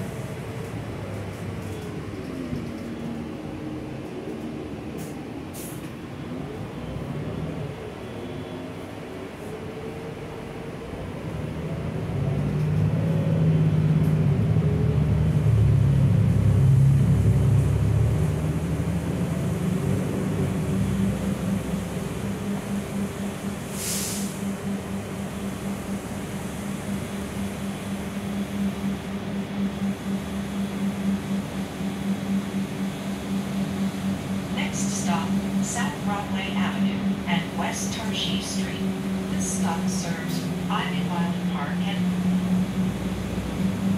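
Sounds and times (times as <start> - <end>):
bus engine drone from inside: 0.0 - 43.9
pulsing low hum: 11.0 - 43.9.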